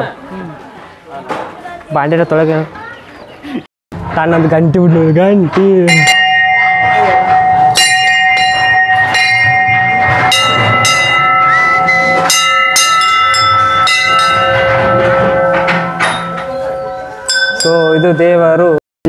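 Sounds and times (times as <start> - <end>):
temple bells clanging: 5.8 - 18.8.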